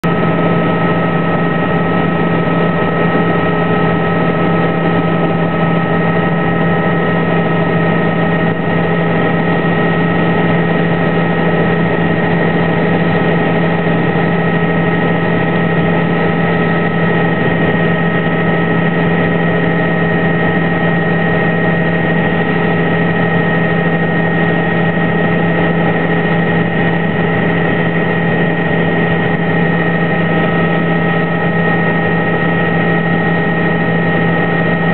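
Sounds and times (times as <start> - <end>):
helicopter engine and rotors drone: 0.0 - 34.9.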